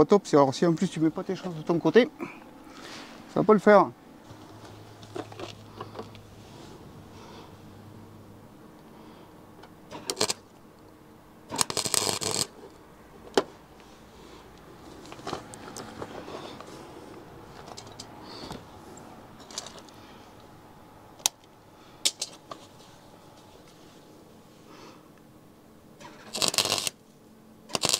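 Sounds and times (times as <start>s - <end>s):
welding arc crackling: 9.9s - 10.5s, 11.5s - 12.7s, 26.0s - 27.0s, 27.7s - 27.9s.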